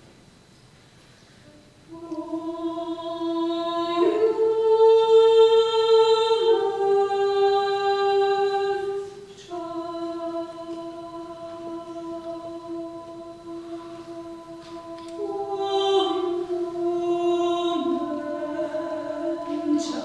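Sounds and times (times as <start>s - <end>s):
vocal ensemble singing in unison: 1.9s - 20.0s.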